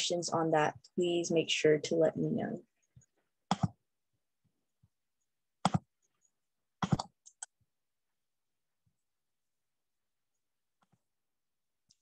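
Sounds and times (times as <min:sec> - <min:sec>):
computer mouse clicks: 0:05.6 - 0:05.9, 0:06.8 - 0:07.6.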